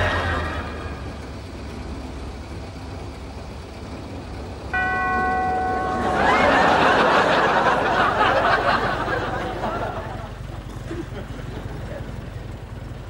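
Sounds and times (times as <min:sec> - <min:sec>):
small car engine idling: 0:00.0 - 0:13.0
steady electronic tone: 0:04.7 - 0:08.7
studio audience laughter: 0:06.0 - 0:12.2.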